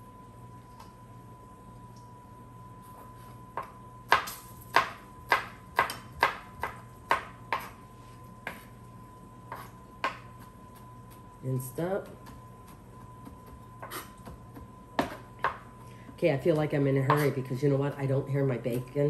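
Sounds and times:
knife chopping on wooden board: 3.6s - 7.8s, 9.5s - 10.5s, 13.2s - 15.6s.

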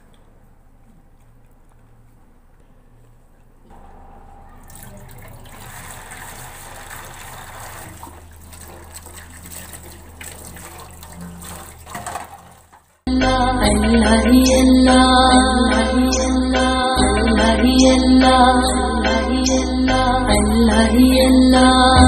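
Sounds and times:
tap water running into steel sink: 4.7s - 12.9s.

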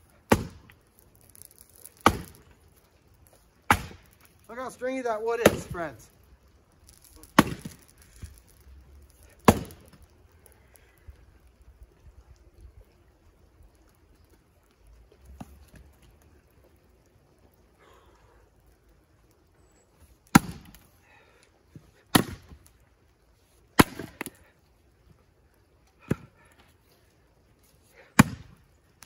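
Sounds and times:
axe chopping firewood: 0.2s - 2.5s, 3.6s - 4.2s, 5.4s - 6.0s, 6.9s - 8.3s, 9.4s - 10.0s, 20.3s - 20.8s, 22.1s - 22.7s, 23.8s - 24.4s, 26.0s - 26.4s, 28.1s - 28.6s.

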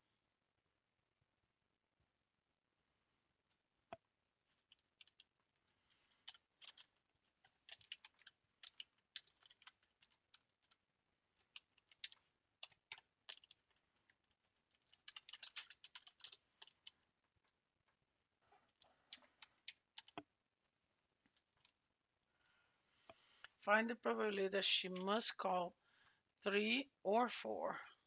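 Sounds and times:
faint keyboard typing: 3.9s - 17.6s, 18.6s - 20.3s, 21.3s - 21.8s.

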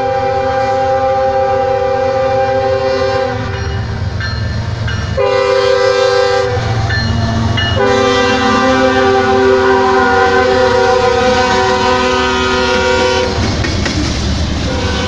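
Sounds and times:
locomotive air horn blasts: 0.0s - 3.6s, 5.2s - 6.9s, 7.8s - 13.5s, 14.7s - 15.0s
locomotive engines rumbling: 0.0s - 15.0s
train wheels clacking on rails: 3.4s - 15.0s.

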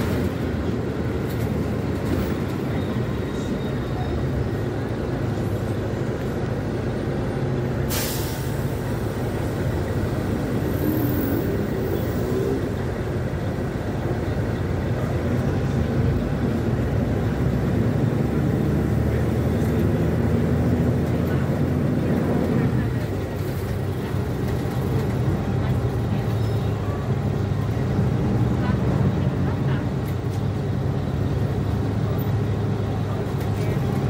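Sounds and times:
bus engine running: 0.0s - 34.0s
sharp hiss of air: 7.9s - 9.1s.

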